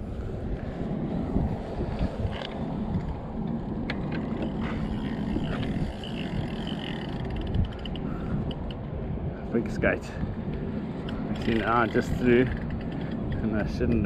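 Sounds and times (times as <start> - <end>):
wind buffeting microphone: 0.0 - 14.0
fishing gear clicks and knocks: 2.2 - 8.9, 10.5 - 14.0.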